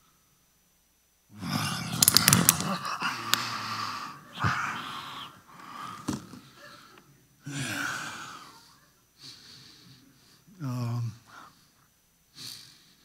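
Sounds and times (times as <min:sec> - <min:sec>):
man humming: 0:01.3 - 0:05.5
man breathing heavily: 0:01.4 - 0:10.6.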